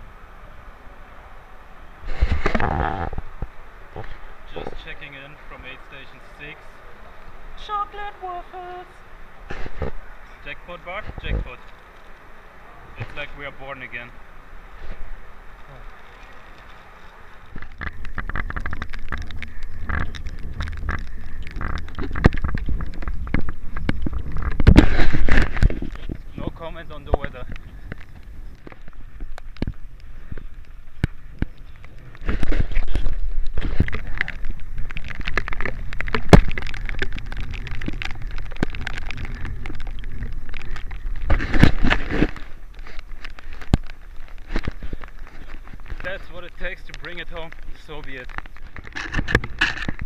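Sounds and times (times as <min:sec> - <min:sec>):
raindrops crackling and tapping: 0:02.0 - 0:50.0
footfalls on wet pavement: 0:09.4 - 0:50.0
wind buffeting microphone: 0:14.6 - 0:50.0.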